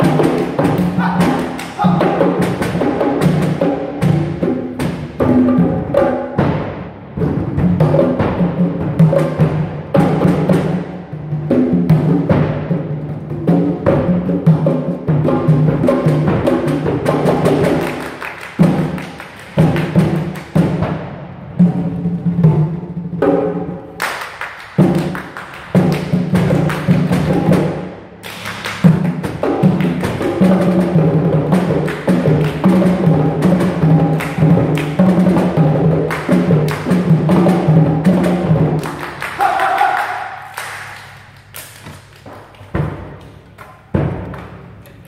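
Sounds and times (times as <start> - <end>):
rhythmic hand claps: 0.0 - 5.2, 15.7 - 21.0, 23.8 - 45.0.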